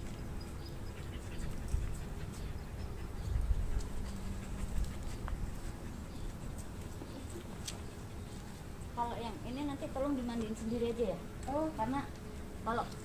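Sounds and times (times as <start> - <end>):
dogs panting: 0.0 - 8.8.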